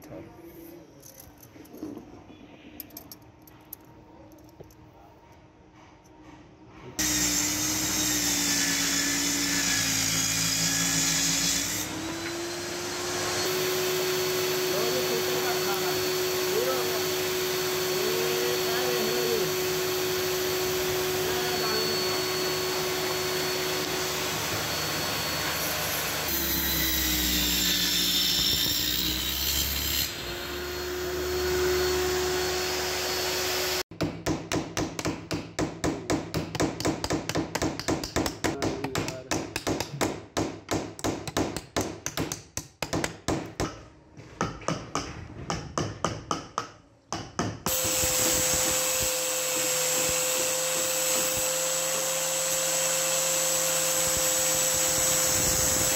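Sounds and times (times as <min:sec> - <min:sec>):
angle grinder sanding wood: 0:07.0 - 0:33.8, 0:47.7 - 0:55.9
table saw cutting: 0:07.0 - 0:33.9, 0:47.7 - 0:55.9
hammer driving nails into wood: 0:34.0 - 0:43.8.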